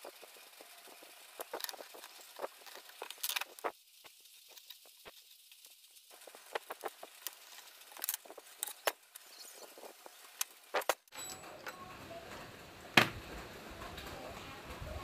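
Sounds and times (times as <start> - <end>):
background hiss: 0.0 - 11.1.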